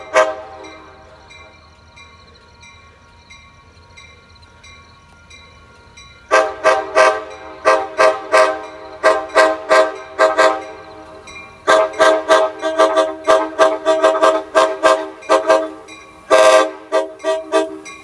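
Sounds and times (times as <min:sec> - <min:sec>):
train air horn blasts: 0:00.0 - 0:01.0, 0:06.3 - 0:10.8, 0:11.6 - 0:18.0.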